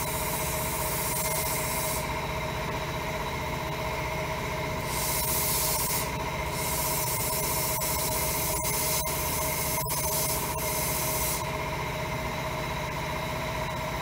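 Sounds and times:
steady machine hum: 0:00.0 - 0:14.0
sandblast gun hissing: 0:04.9 - 0:07.3, 0:08.8 - 0:11.4.

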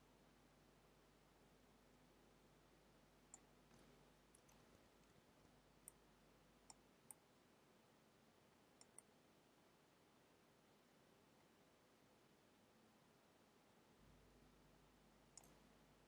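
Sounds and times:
faint computer mouse clicks: 0:08.8 - 0:09.1, 0:15.3 - 0:15.6.

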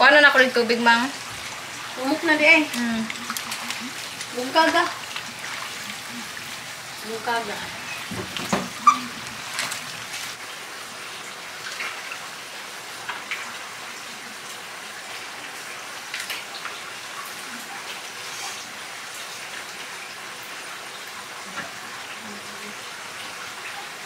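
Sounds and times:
water splashing: 0:00.0 - 0:12.4
wet squelching noodles: 0:01.3 - 0:06.7.

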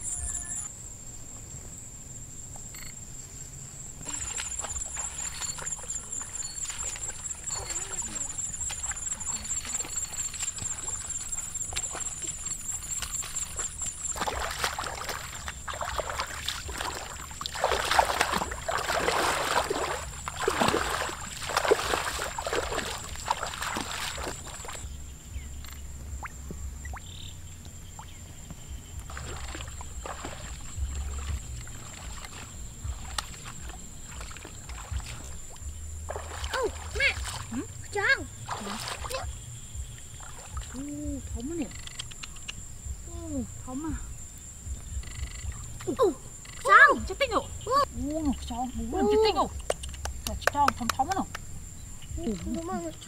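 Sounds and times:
high-pitched insect trill: 0:00.0 - 0:53.0
feet wading through water: 0:04.0 - 0:25.0, 0:29.0 - 0:53.0.

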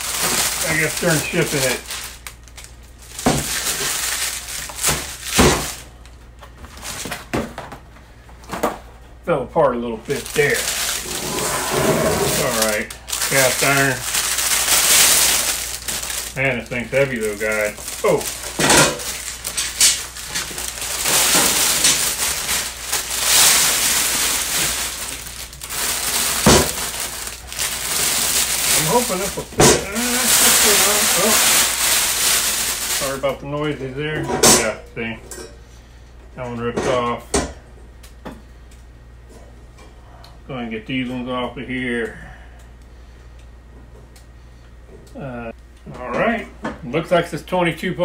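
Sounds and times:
plastic wrap and cardboard rustling: 0:00.0 - 0:07.6, 0:10.0 - 0:33.9.

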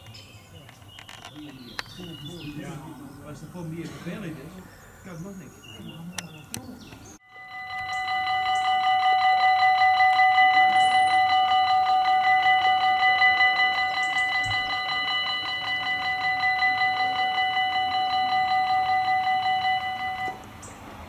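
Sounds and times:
level crossing warning bell: 0:07.2 - 0:21.0.

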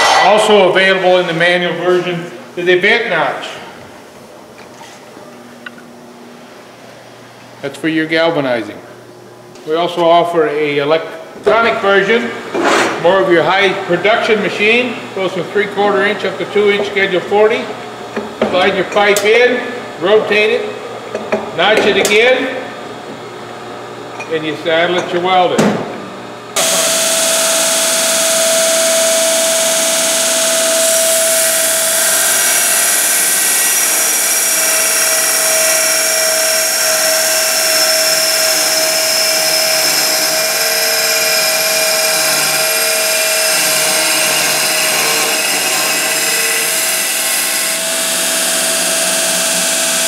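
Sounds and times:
belt grinder grinding steel tube: 0:26.6 - 0:50.0.

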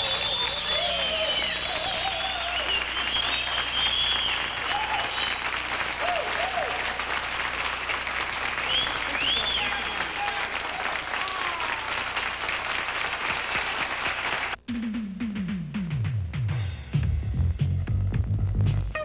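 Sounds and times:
voices calling out: 0:00.0 - 0:03.8
audience applauding: 0:00.0 - 0:14.6.

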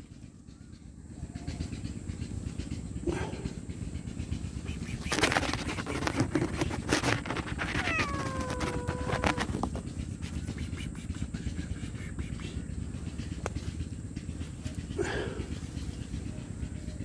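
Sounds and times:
steady low rumble: 0:00.0 - 0:17.0
cat meowing: 0:07.3 - 0:09.6.

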